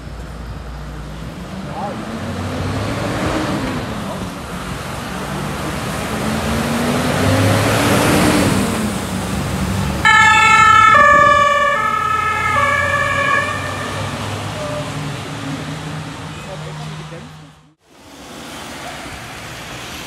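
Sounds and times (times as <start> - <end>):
diesel engine passing: 0.0 - 20.0
tyres on wet road: 0.0 - 20.0
two-tone siren: 10.0 - 15.1.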